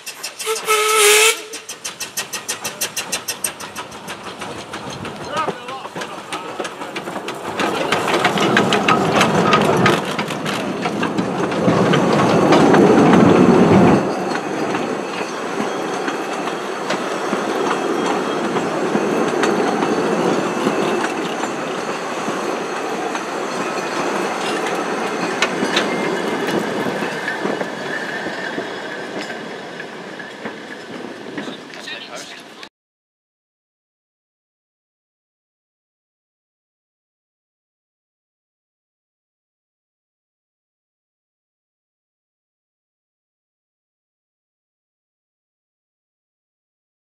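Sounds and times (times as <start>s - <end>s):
high wheel squeal: 0.0s - 6.8s, 11.8s - 32.4s
steam locomotive exhaust beats: 0.0s - 32.4s
train coaches clickety-clacking: 0.0s - 32.7s.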